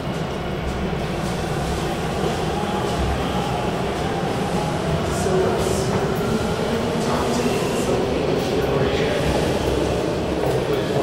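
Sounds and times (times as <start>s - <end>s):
subway train wheels rumbling: 0.0s - 11.0s.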